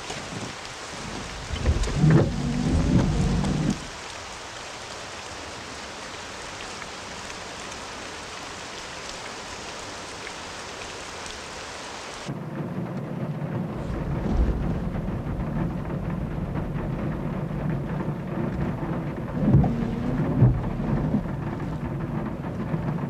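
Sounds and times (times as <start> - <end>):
heavy rain on a car: 0.0 - 23.0
low rumble of thunder: 0.2 - 4.0, 12.3 - 23.0
deep thud: 13.8 - 17.6.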